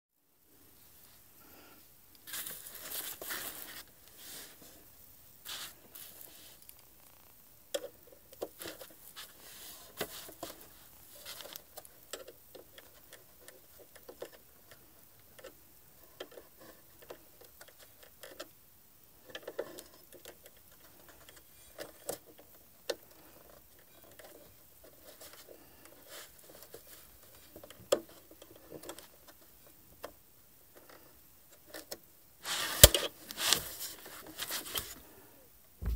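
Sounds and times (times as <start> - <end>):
hands handling plastic parts: 2.2 - 4.8, 19.3 - 35.1.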